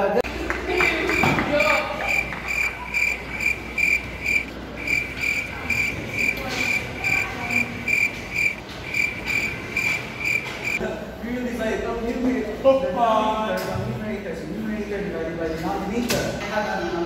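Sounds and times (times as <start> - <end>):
cricket chirping: 0.8 - 10.8.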